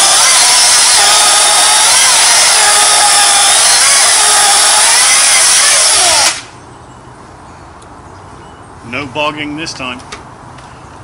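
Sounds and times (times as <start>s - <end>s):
electric chainsaw cutting log: 0.0s - 6.5s.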